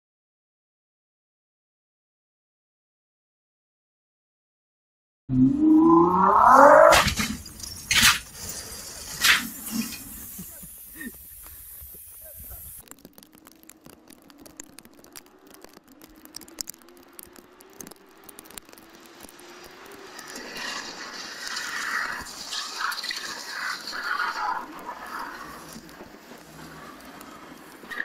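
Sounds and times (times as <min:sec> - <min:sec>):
crackle of clicks: 0:06.3 - 0:28.0
water spray from wet road: 0:07.1 - 0:12.9, 0:13.7 - 0:28.0.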